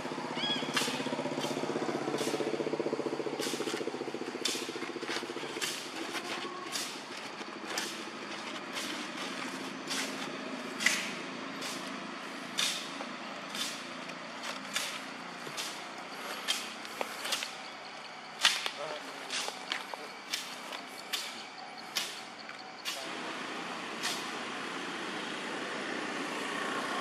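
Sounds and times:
brush cutter engine running: 0.0 - 10.0
sharp ticks: 19.6 - 23.0.

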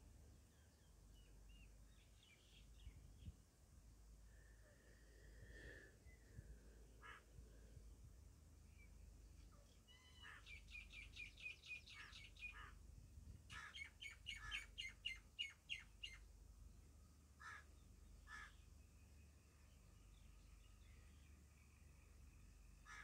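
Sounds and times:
faint bird chirps: 8.6 - 12.8, 13.5 - 16.3.

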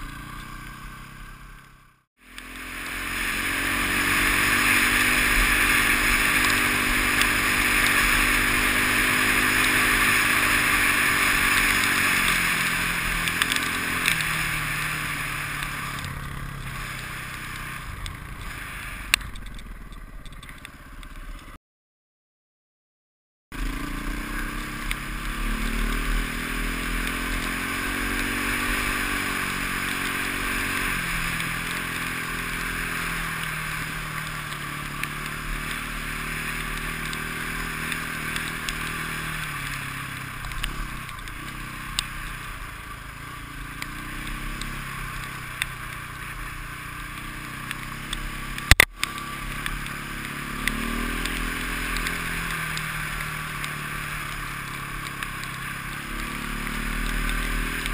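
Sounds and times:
motorcycle engine revving: 0.0 - 21.6, 23.5 - 57.9
steady rushing noise: 2.3 - 20.4.

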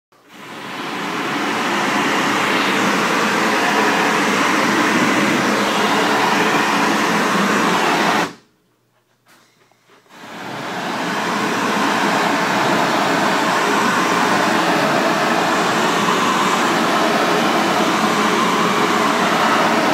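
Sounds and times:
pressure washer spray hissing: 10.2 - 19.9.

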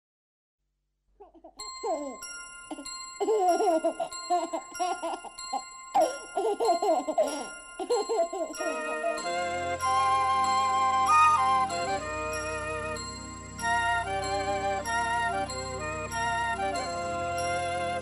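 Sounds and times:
cartoon baby babbling and giggling: 1.2 - 9.4
bell-like chime tones: 1.6 - 18.0.

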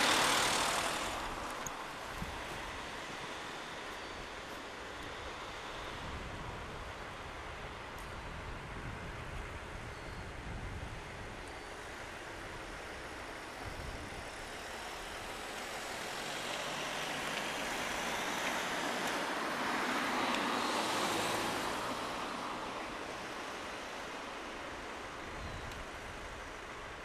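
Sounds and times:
vehicle passing: 0.0 - 3.8, 15.4 - 24.0
street hum: 0.0 - 27.0.

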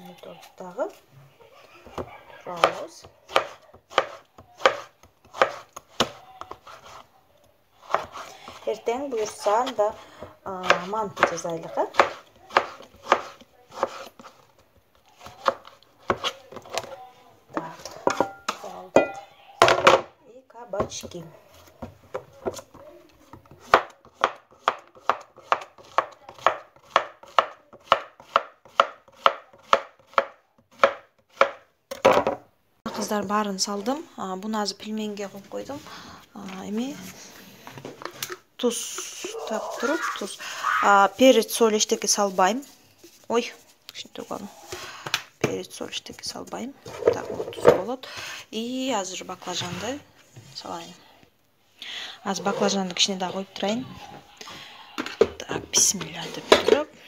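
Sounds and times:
knife cutting on plastic board: 2.6 - 7.0, 7.8 - 8.6, 10.6 - 14.4.

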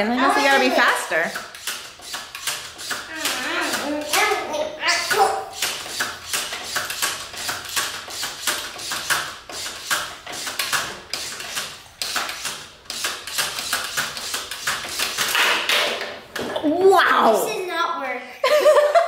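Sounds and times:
plastic toy clicking and tapping: 1.3 - 4.4, 5.1 - 15.5.

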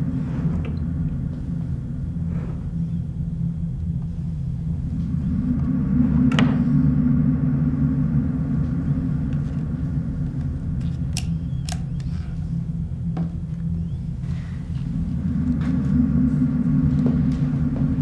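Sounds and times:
low horror soundtrack drone: 0.0 - 18.0
sharp clicks: 10.9 - 12.1.

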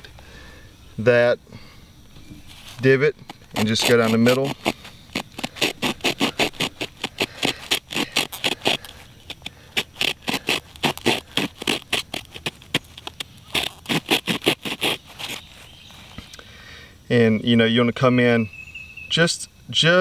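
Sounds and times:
saw blade scraping wood: 2.4 - 15.7.

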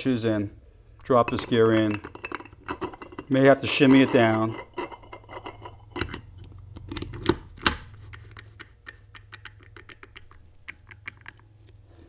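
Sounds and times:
steady low hum: 0.0 - 12.0
metal discs clicking: 1.0 - 11.8
metal gear clanks: 1.2 - 6.3.

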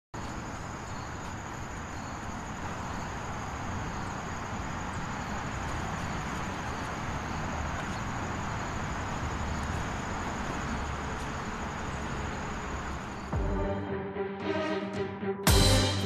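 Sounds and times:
insects chirring: 0.2 - 13.4
distant traffic hum: 0.2 - 13.5.

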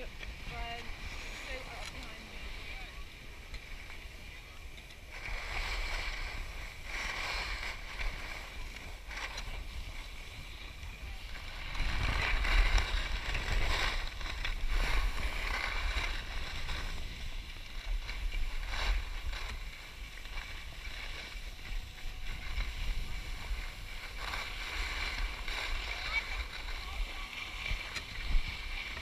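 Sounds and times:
skis scraping over snow: 0.0 - 29.0
wind rumbling on microphone: 0.0 - 29.0.

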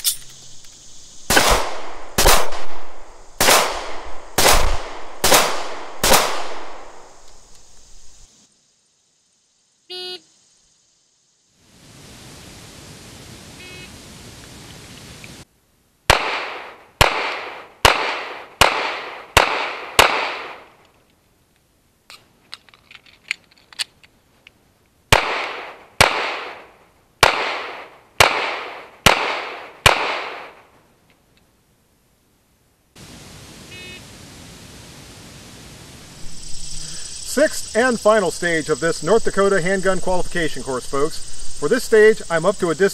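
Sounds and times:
small metallic clicks: 0.0 - 0.8, 22.1 - 24.6
pistol shots echoing: 1.3 - 7.4, 16.1 - 20.7, 25.1 - 30.6.

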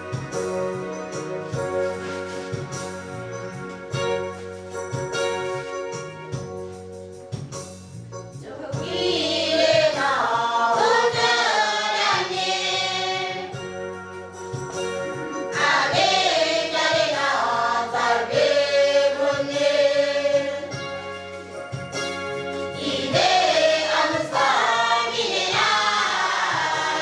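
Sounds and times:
mixed choir singing: 8.4 - 13.6, 15.5 - 20.8, 22.8 - 27.0.

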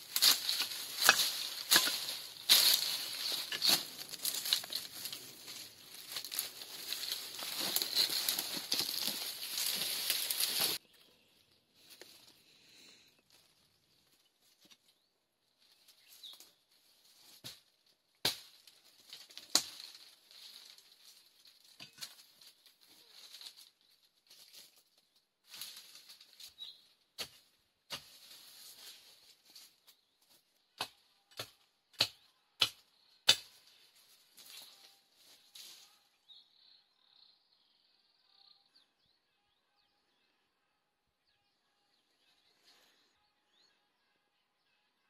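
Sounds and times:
rustling and handling noise: 0.0 - 10.8.

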